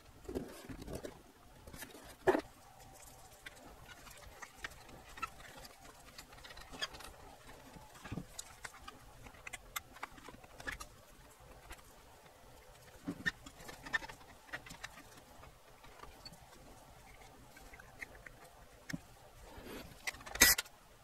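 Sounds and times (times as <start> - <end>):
cables clicking and rustling: 0.0 - 21.0.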